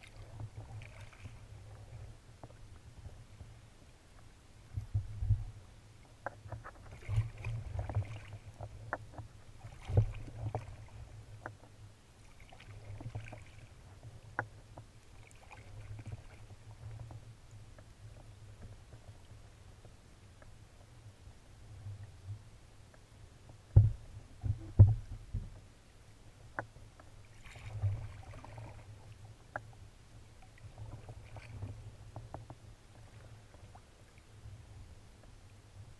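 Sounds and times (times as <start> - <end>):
paddle splashing in water: 0.0 - 1.9, 6.7 - 11.4, 12.2 - 13.9, 15.0 - 16.9, 27.2 - 29.6, 30.5 - 32.1
water lapping at hull: 0.0 - 35.9.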